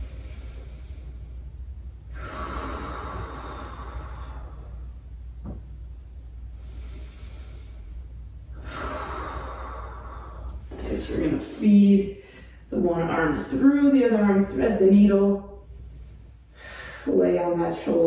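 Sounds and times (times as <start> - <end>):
person breathing deeply: 0.0 - 5.1, 6.4 - 10.8, 15.8 - 17.1.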